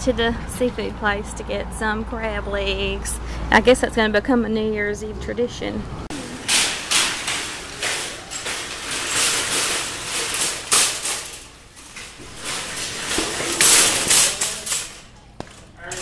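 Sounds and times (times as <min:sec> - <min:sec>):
shopping cart rattling and clanking: 0:06.1 - 0:16.0.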